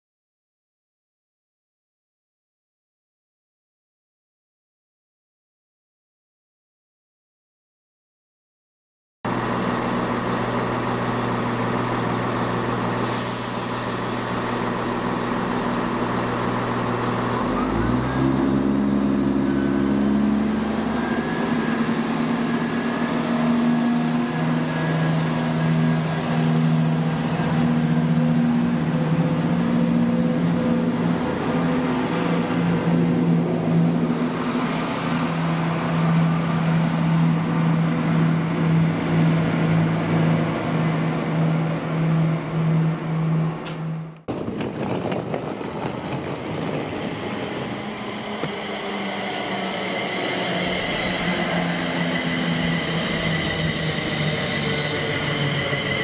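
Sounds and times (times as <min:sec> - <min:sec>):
train traction hum: 0:09.3 - 0:56.0.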